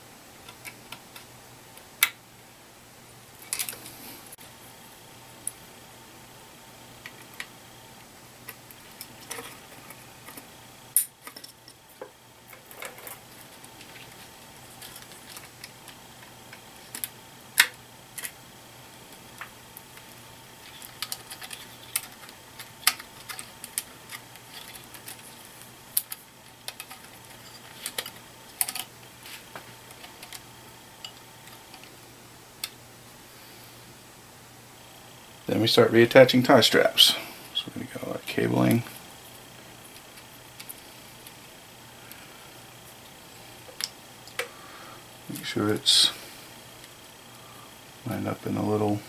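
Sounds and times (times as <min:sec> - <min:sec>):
faint steady hum: 0:00.0 - 0:49.0
wire connectors clicking into sockets: 0:20.8 - 0:25.2.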